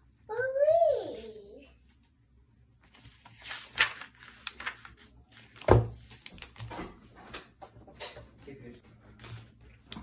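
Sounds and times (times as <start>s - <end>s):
paper pages rustling: 2.8s - 6.7s, 9.0s - 10.0s.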